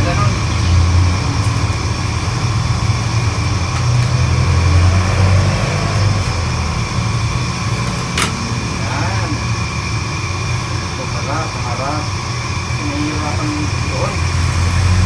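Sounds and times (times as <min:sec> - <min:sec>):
kitchen equipment rumble and hum: 0:00.0 - 0:15.0.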